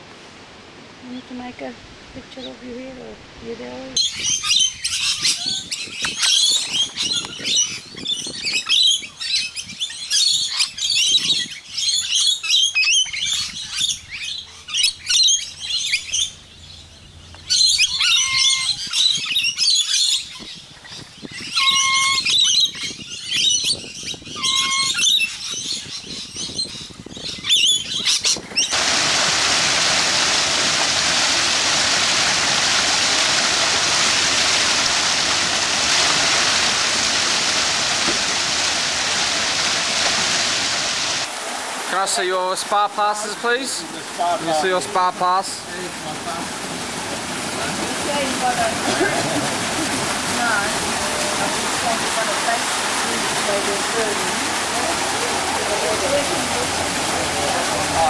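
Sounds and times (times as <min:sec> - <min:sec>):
lorikeets chattering: 0:03.8 - 0:28.8
waterfall pouring into pool: 0:28.7 - 0:58.0.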